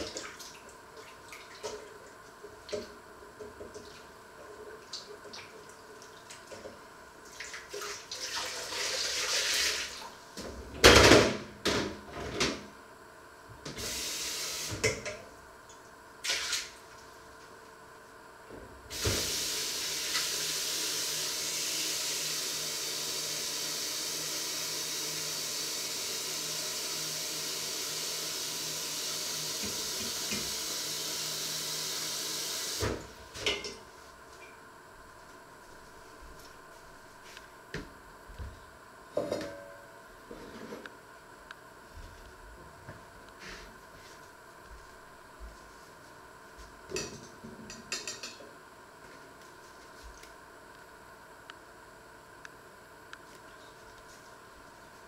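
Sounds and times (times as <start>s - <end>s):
tap water running into sink: 18.9s - 33.0s.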